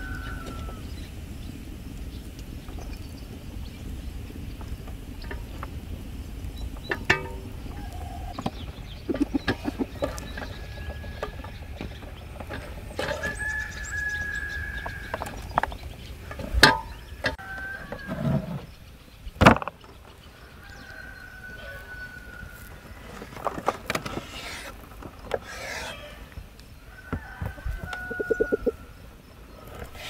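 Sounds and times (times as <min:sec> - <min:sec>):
chickens clucking: 0:04.6 - 0:18.6, 0:20.0 - 0:30.0.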